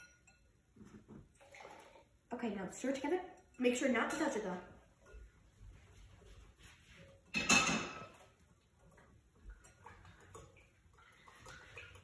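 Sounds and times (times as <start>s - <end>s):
kitchenware clattering: 0.0s - 1.4s, 3.3s - 6.0s, 6.7s - 12.0s.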